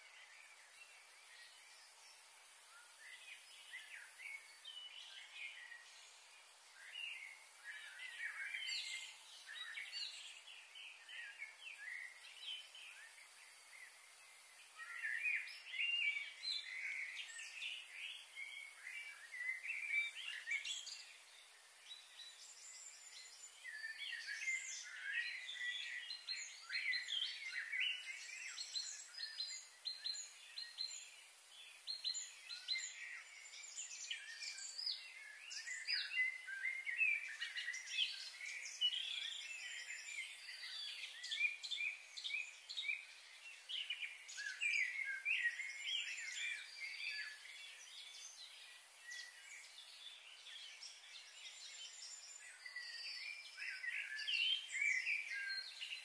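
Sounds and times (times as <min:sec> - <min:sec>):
birds chirping and singing: 0:14.7 - 0:31.1, 0:31.7 - 0:56.0.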